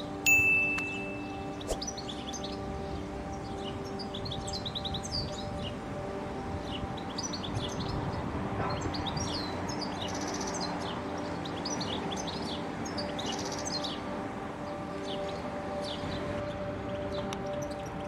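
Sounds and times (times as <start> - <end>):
steady hum of held tones: 0.0 - 18.0
goldfinch singing: 0.3 - 5.5.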